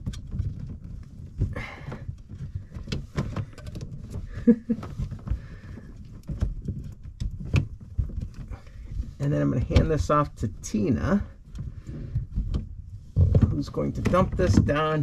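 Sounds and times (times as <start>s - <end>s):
plastic clicks and knocks: 0.0s - 10.1s
plastic rubbing against tubing: 0.0s - 15.0s.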